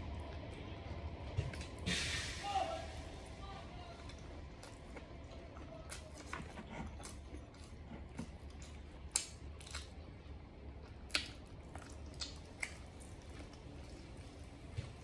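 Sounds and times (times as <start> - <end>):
low steady hum: 0.0 - 15.0
wet mouth clicks and chewing: 4.6 - 14.3.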